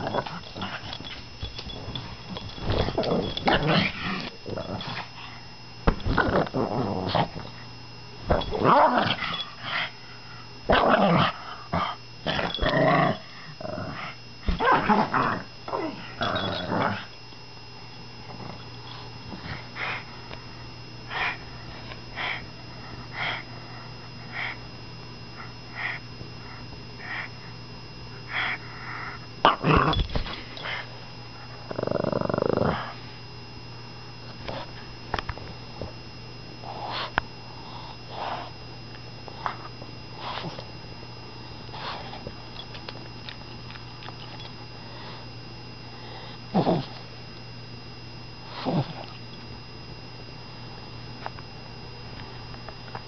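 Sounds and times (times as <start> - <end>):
dog growling in play: 0.0 - 5.4, 6.0 - 7.6, 8.3 - 10.0, 10.7 - 17.2, 21.1 - 22.4, 28.2 - 33.0, 36.6 - 37.1, 46.1 - 47.0, 48.5 - 49.2
dog snorting and wheezing: 36.6 - 38.6, 46.0 - 47.0, 48.5 - 49.2.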